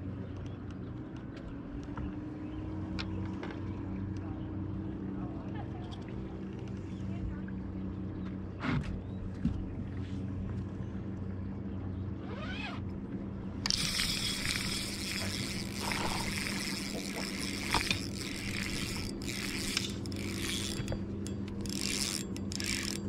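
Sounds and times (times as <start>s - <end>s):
steady low hum: 0.0s - 23.0s
fishing reel cranking ticking: 13.6s - 23.0s.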